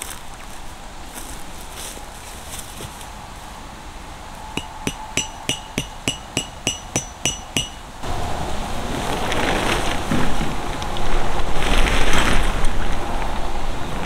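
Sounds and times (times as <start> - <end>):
hammer striking metal peg: 4.6 - 8.0.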